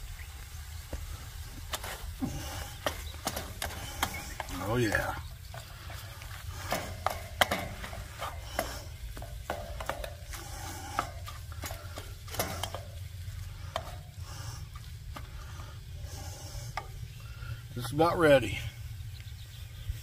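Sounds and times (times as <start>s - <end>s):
food frying sizzle: 0.0s - 17.7s
low steady rumble: 0.0s - 20.0s
spatula scraping a pan: 1.6s - 17.2s.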